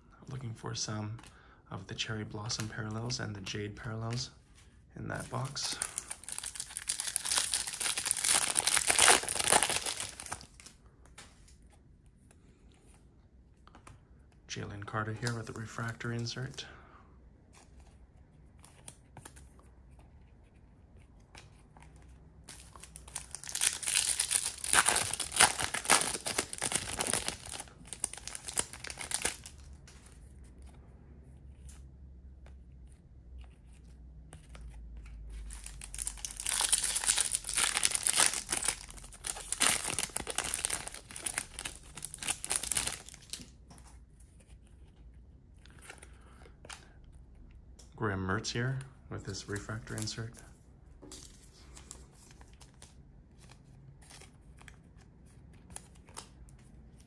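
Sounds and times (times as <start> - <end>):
wrappers tearing and crinkling: 5.1 - 10.7, 22.5 - 29.7, 35.4 - 43.5.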